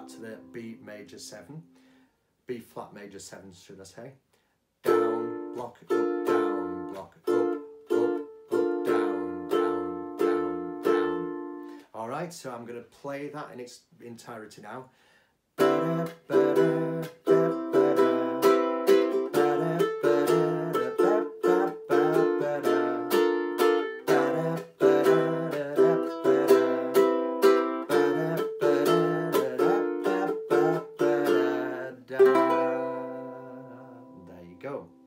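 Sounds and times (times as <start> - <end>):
ukulele strumming: 0.0 - 1.2, 4.8 - 11.8, 15.6 - 35.0.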